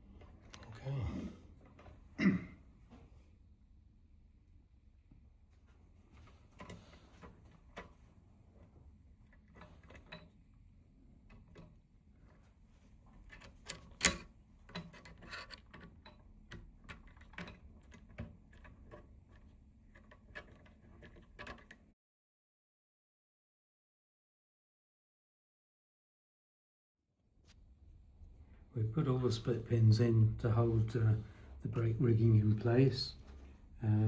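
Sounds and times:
small steel parts handled: 9.2 - 10.4, 13.0 - 21.8
screwdriver clicking on metal: 13.1 - 19.1.

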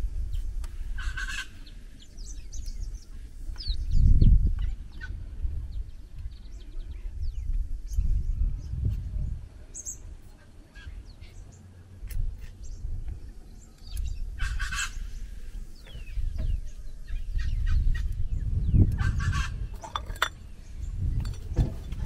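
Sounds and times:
birds chirping: 10.7 - 22.0.

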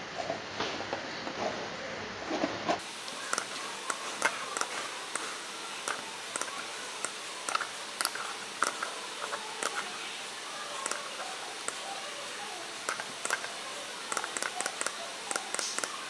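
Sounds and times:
steady hiss: 2.8 - 16.0
computer mouse clicking: 3.2 - 9.9, 10.8 - 11.9, 12.8 - 16.0.

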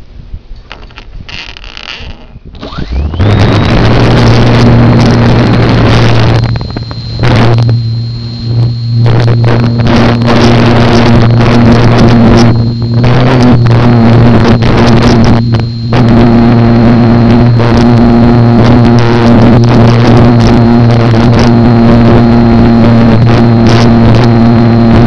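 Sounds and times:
wind rush on microphone: 0.0 - 7.9
electric motor propeller whine: 0.7 - 25.0.

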